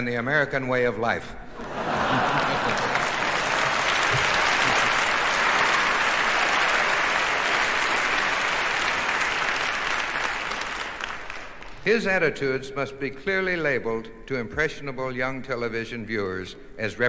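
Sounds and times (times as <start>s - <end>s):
audience applauding: 1.6s - 11.8s.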